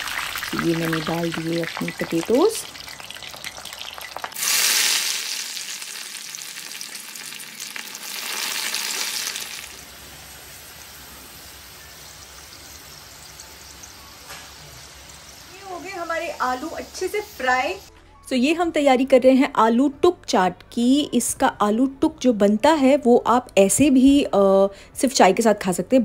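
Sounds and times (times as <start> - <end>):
potatoes sizzling in hot oil: 0.0 - 17.9.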